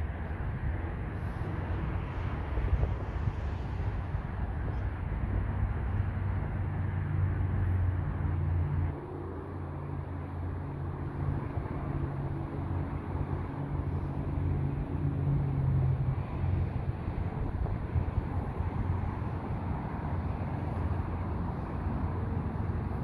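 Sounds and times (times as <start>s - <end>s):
wind on microphone: 0.0s - 23.0s.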